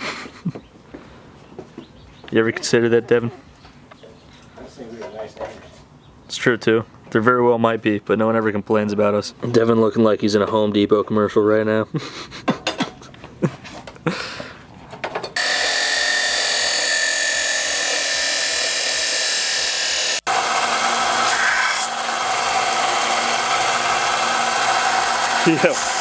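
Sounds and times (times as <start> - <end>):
belt sander grinding metal: 15.3 - 26.0
chop saw cutting metal: 15.4 - 26.0.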